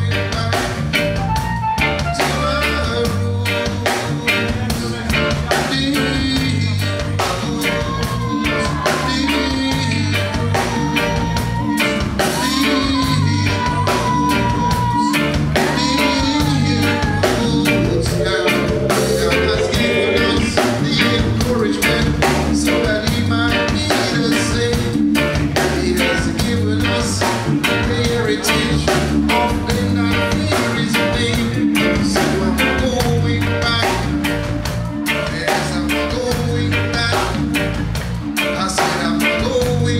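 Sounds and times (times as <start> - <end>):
man singing: 0.0 - 1.2, 1.9 - 37.8, 38.4 - 39.9
reggae band playing: 0.0 - 39.9.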